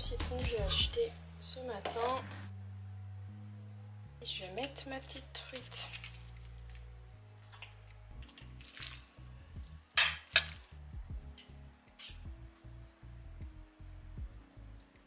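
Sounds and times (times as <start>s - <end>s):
background music with steady beat: 0.0s - 15.0s
pasta stirred in saucepan: 5.3s - 10.8s
utensil clanking against pan: 10.0s - 10.6s.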